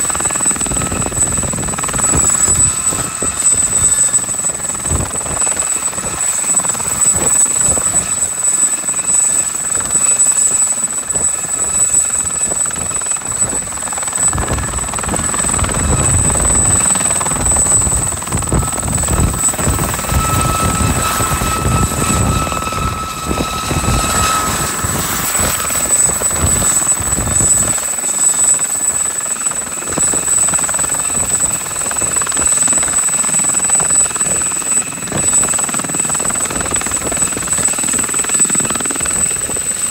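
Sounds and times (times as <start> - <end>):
helicopter rotor chop: 0.0 - 39.9
turbine high whine: 0.0 - 39.9.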